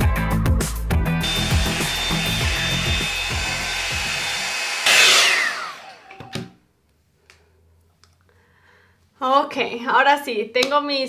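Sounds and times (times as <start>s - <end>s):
background music: 0.0s - 5.1s
hot-air dryer brush whining: 1.2s - 6.4s.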